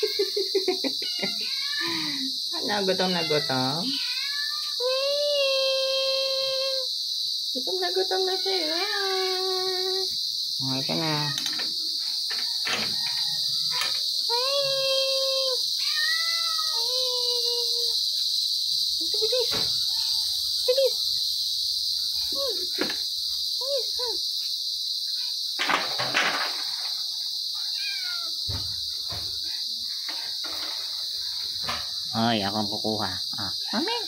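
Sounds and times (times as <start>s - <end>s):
cats meowing: 0.0s - 2.3s, 3.0s - 6.9s, 10.9s - 11.8s, 12.8s - 18.0s, 27.5s - 29.5s
crickets chirring: 0.0s - 34.0s.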